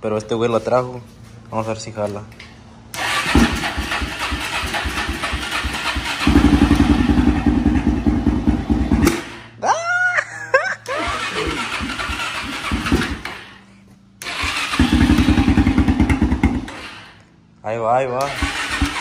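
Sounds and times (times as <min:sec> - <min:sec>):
engine cranking: 0:02.9 - 0:07.6, 0:10.8 - 0:13.6, 0:14.2 - 0:17.2, 0:18.2 - 0:19.0
engine running roughly: 0:02.9 - 0:09.5, 0:10.9 - 0:13.6, 0:14.2 - 0:17.1.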